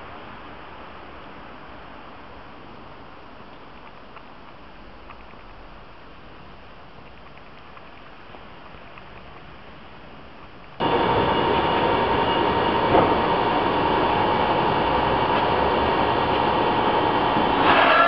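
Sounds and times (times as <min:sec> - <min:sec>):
rail noise: 0:10.7 - 0:18.0
electric railcar hum and whine: 0:10.8 - 0:18.0.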